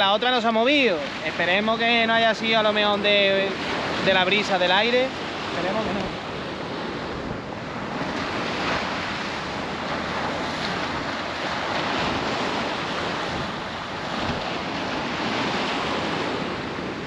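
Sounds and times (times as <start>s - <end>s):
sea surf washing on shore: 0.0s - 17.0s
wind on microphone: 0.0s - 17.0s.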